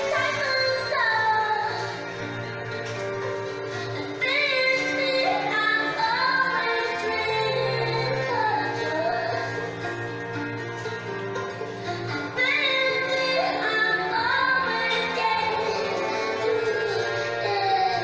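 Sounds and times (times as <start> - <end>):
woman singing: 0.0 - 2.0, 4.0 - 9.7, 12.1 - 18.0
dance music: 0.0 - 18.0.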